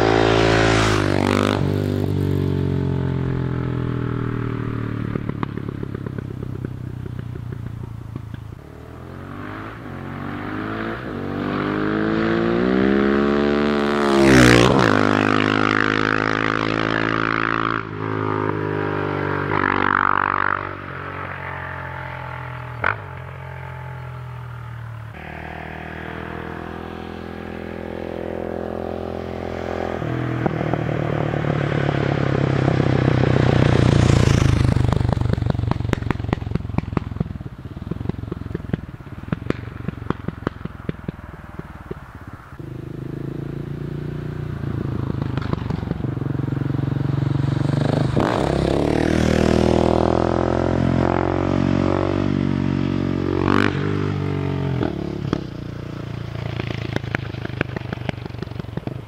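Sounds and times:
motorcycle revving and passing: 0:00.0 - 0:59.0
motorcycle exhaust pop: 0:04.9 - 0:08.6, 0:33.5 - 0:43.2, 0:44.6 - 0:46.8, 0:54.8 - 0:55.6, 0:56.4 - 0:59.0.

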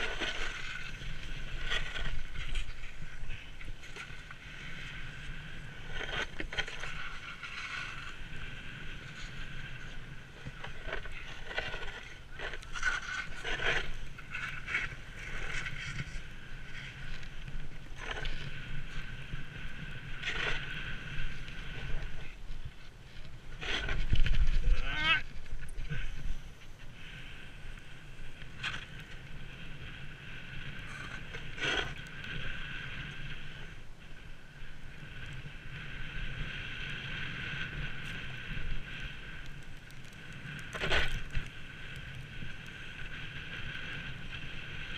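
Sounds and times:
snowboard edges scraping: 0:00.0 - 0:44.9
wind on microphone: 0:00.0 - 0:44.9.

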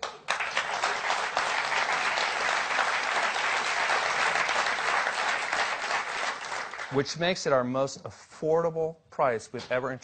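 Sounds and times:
large audience applauding: 0:00.0 - 0:07.2.

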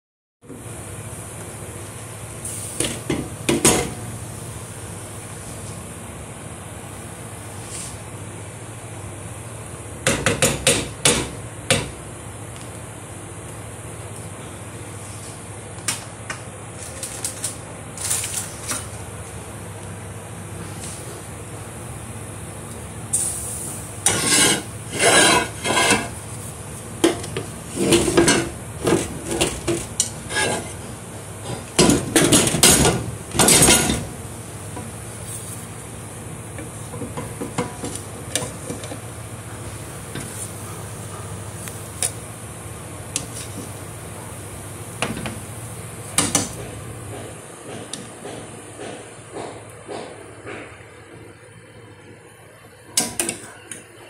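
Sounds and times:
steady low hum: 0:00.4 - 0:54.0
metal utensil scraping cooking pot: 0:24.0 - 0:26.2, 0:30.0 - 0:30.8.

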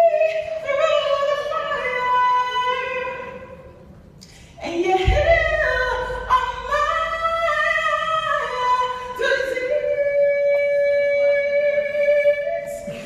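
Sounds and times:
woman singing gospel song: 0:00.0 - 0:03.6, 0:04.6 - 0:13.0.

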